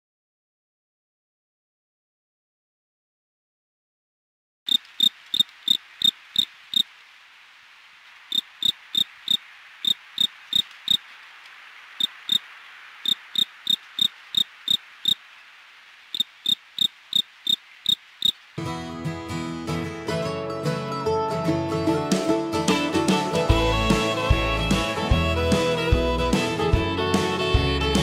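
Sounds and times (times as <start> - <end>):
cricket chirping: 4.7 - 18.6
faint steady hiss: 4.7 - 18.7
acoustic guitar music: 18.6 - 28.0.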